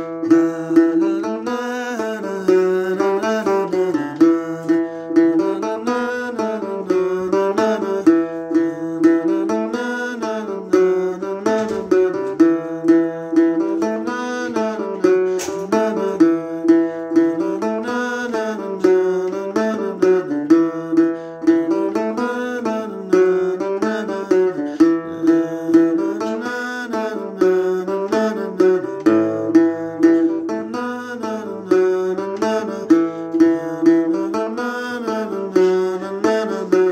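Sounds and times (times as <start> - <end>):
acoustic guitar picking: 0.0 - 36.9
wordless singing: 0.0 - 36.9.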